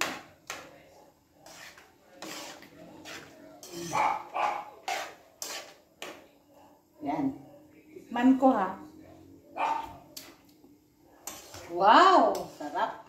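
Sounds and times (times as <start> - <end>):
dog barking: 3.8 - 4.8, 6.5 - 7.7, 9.6 - 10.0.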